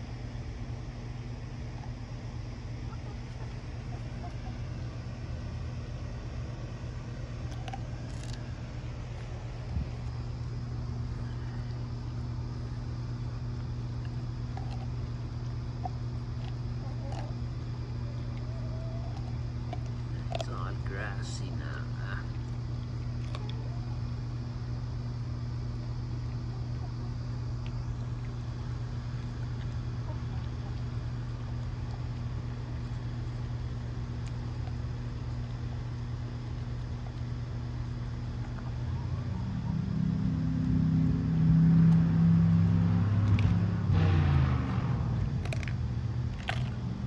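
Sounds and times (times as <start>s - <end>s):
low mechanical hum: 0.0s - 47.0s.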